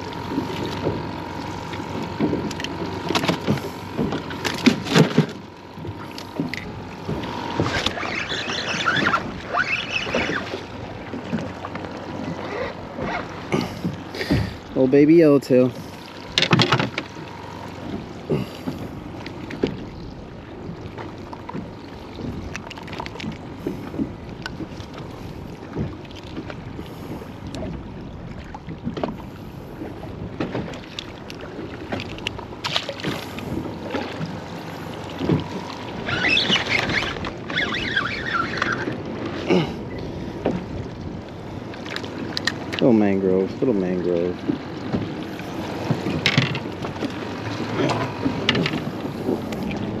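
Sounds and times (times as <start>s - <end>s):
water lapping against boat hull: 0.0s - 50.0s
fishing rod knocks and clicks: 45.9s - 46.7s.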